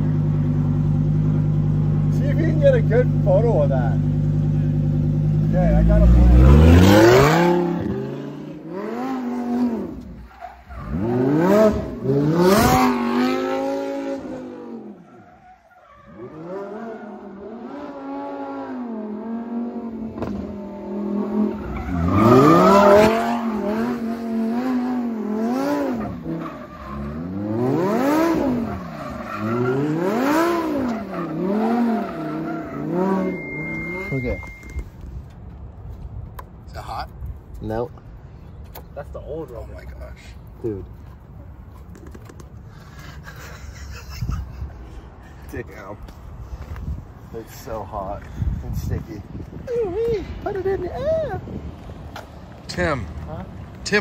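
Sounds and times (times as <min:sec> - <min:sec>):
sports car engine revving: 0:00.0 - 0:10.2, 0:10.9 - 0:15.0, 0:16.1 - 0:34.1
tires squealing: 0:01.5 - 0:19.4, 0:20.1 - 0:35.2.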